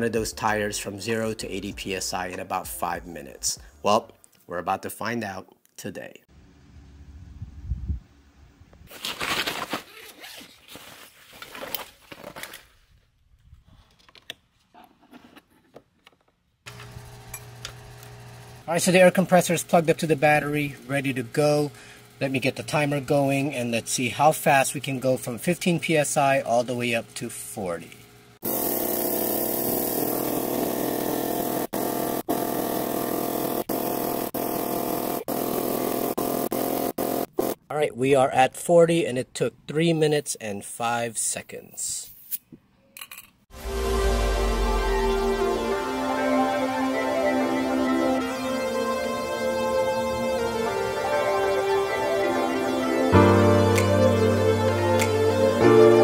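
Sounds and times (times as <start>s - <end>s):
rustling and crinkling: 8.9s - 16.0s
air compressor humming: 16.7s - 37.6s.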